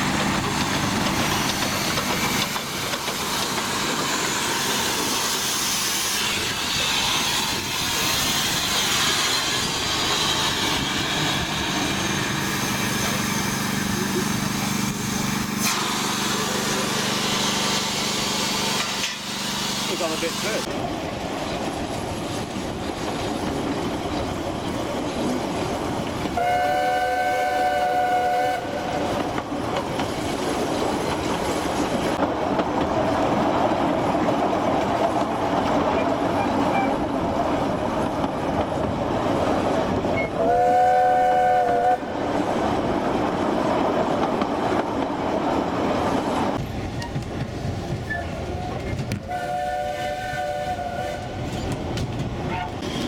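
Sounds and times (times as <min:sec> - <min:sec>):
carriages running on track: 0:00.0 - 0:53.0
steam whistle blasts: 0:26.4 - 0:29.0, 0:40.3 - 0:42.1, 0:49.2 - 0:51.5.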